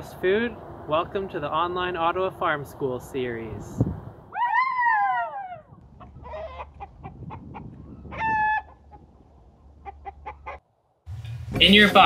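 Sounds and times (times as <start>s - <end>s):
chickens clucking: 5.7s - 10.7s.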